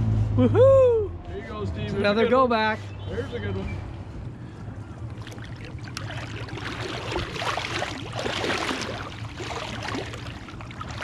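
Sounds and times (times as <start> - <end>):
low steady hum: 4.1 - 11.0
water splashing and sloshing: 4.8 - 11.0.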